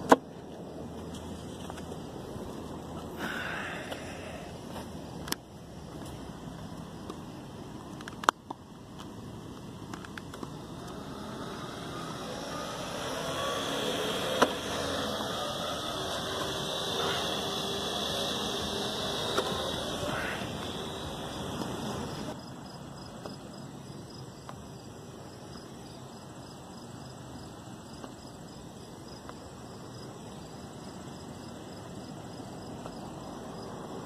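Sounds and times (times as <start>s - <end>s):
crickets chirping: 0.0s - 34.0s
steady hum: 8.8s - 26.6s.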